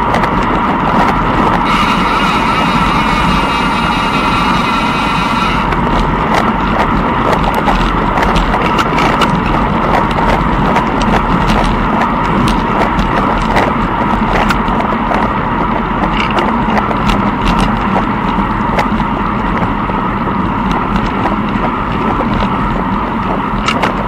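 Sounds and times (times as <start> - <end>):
loud rushing noise: 0.8 - 8.4.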